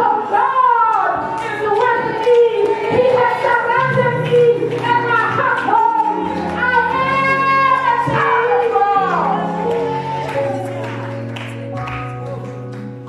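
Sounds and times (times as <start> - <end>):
woman singing into microphone: 0.0 - 10.2.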